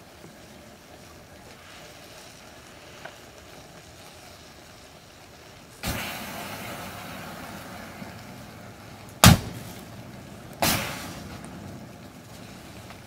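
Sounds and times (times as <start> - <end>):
fire burning: 0.0 - 13.0
whoosh of flame: 0.0 - 13.0
lighters bursting with sharp bangs: 5.8 - 8.2, 9.2 - 11.6.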